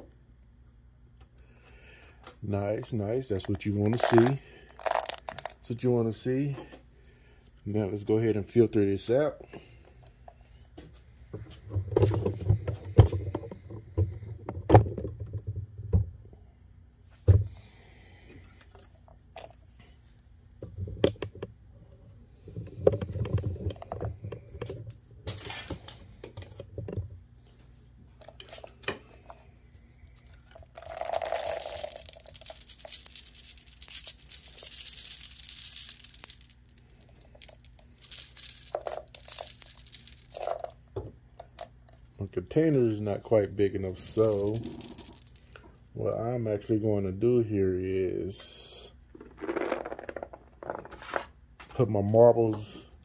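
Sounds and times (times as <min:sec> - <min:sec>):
marbles knocking and rattling: 0:03.4 - 0:05.6, 0:30.4 - 0:40.8, 0:43.8 - 0:45.6, 0:49.1 - 0:51.1
strainer shaking scratchy hiss: 0:30.8 - 0:40.7, 0:43.9 - 0:45.4.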